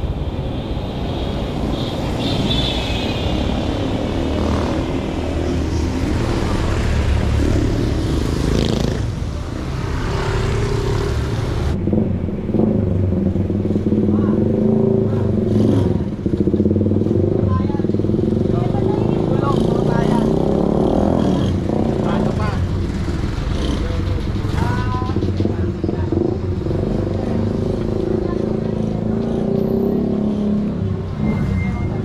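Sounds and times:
vehicles passing with tyre hiss: 0.0s - 11.8s.

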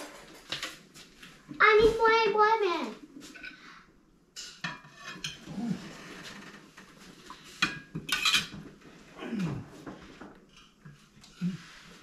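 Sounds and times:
dishes clattering: 4.4s - 5.5s, 7.6s - 8.8s
plates and cutlery clinking: 4.4s - 5.5s, 7.4s - 8.7s.

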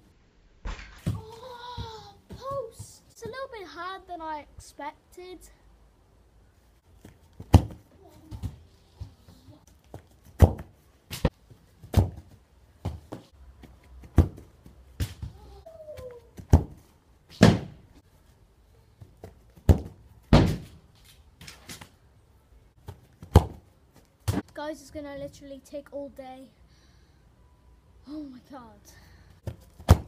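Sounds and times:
football thuds on grass: 7.0s - 8.6s, 9.9s - 15.4s, 16.4s - 17.8s, 19.2s - 20.8s, 22.8s - 24.4s, 29.4s - 30.0s.

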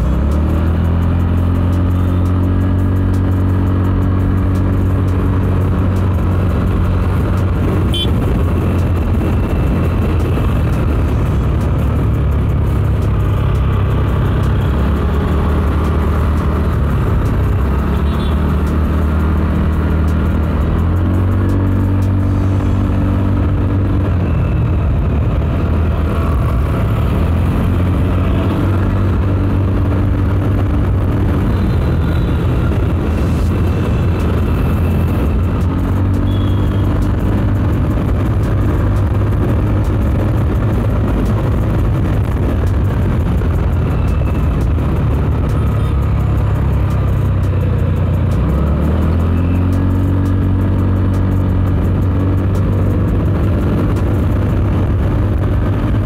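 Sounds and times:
vehicle engine running: 0.0s - 56.0s.

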